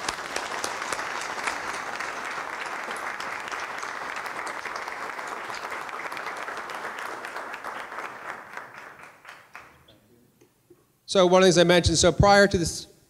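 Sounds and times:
audience applauding: 0.0s - 9.9s.

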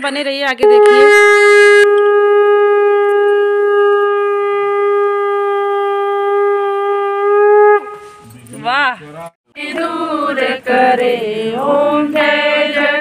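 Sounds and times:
conch shell blown: 0.6s - 8.4s.

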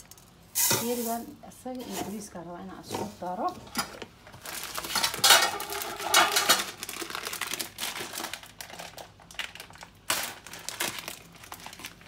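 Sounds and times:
dry rice rattling in metal pot: 4.8s - 7.0s.

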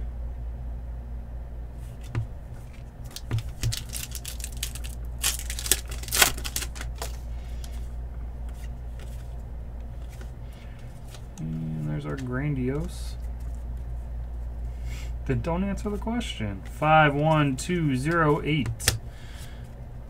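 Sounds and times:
steady low hum: 0.0s - 20.0s
foil wrapper crinkling: 2.6s - 7.8s.

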